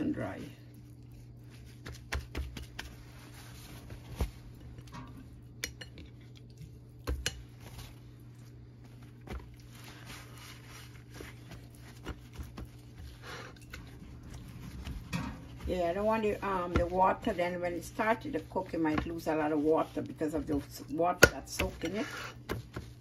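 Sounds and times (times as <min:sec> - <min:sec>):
steady low hum: 0:00.0 - 0:23.0
paper towel rustling and patting: 0:01.2 - 0:04.6, 0:07.6 - 0:13.2, 0:13.8 - 0:21.0, 0:22.4 - 0:23.0.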